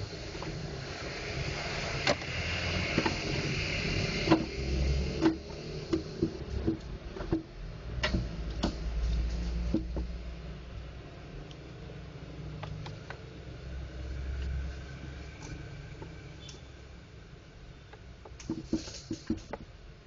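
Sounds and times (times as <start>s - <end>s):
low background noise: 0.0s - 20.0s.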